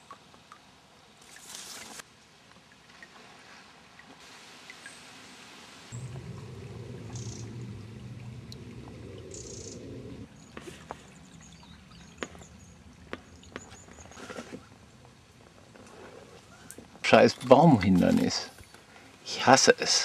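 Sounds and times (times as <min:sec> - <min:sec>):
water trickling: 0:00.0 - 0:16.0
low rumble: 0:05.9 - 0:10.4.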